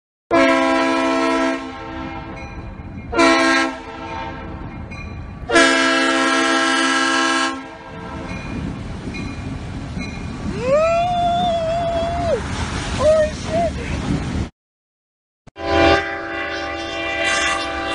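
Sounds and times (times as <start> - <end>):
locomotive air horn blasts: 0.3 - 2.4, 3.1 - 4.7, 5.5 - 8.4, 15.6 - 17.9
low rumble of train: 0.3 - 14.5, 15.6 - 17.9.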